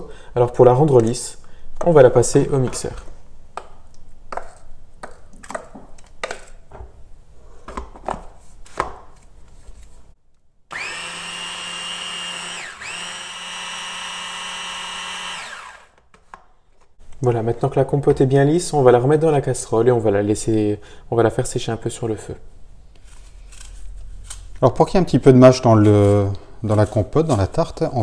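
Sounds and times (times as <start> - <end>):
hand blender motor running: 10.7 - 16.0.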